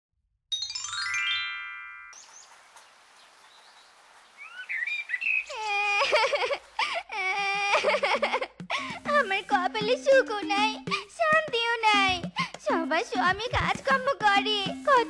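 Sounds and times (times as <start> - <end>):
descending bell-like chimes: 0.5 - 2.4
bird chirps: 2.1 - 6.3
woman wailing: 5.5 - 8.5.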